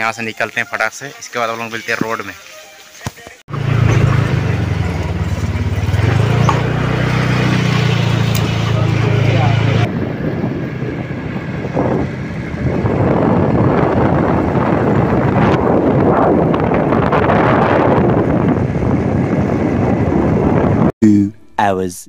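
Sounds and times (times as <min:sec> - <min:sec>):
road noise: 0:02.0 - 0:20.9
motorbike engine: 0:03.5 - 0:21.3
wind buffeting microphone: 0:05.0 - 0:20.9.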